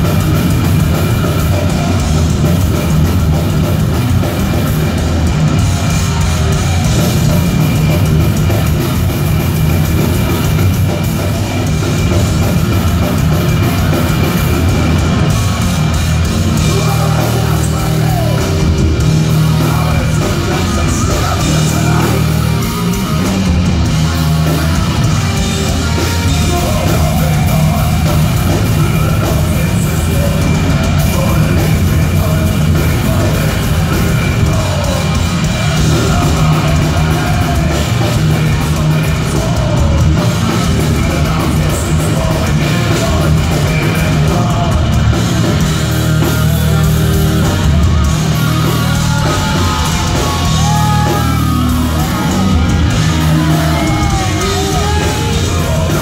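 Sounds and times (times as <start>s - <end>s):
bass guitar: 0.0s - 56.0s
distorted electric guitars: 0.0s - 56.0s
pounding drum kit: 0.0s - 56.0s.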